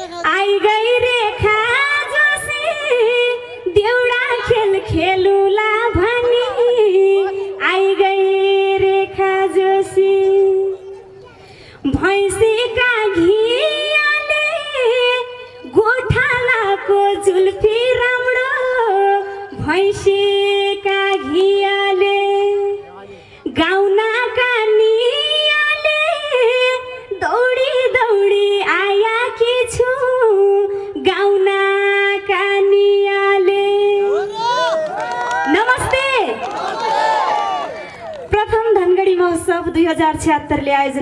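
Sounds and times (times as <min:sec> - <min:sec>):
woman singing into microphone: 0:00.2 - 0:11.0, 0:11.8 - 0:22.8, 0:23.5 - 0:34.3.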